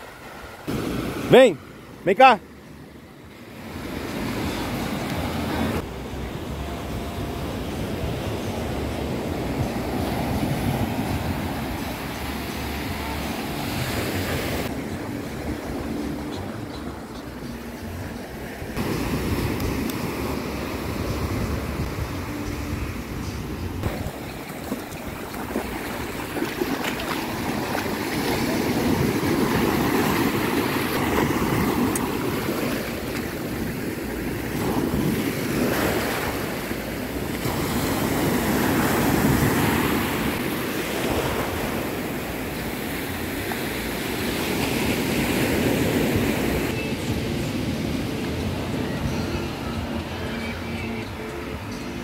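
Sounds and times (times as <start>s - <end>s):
ocean surf breaking on beach: 0.0s - 51.8s.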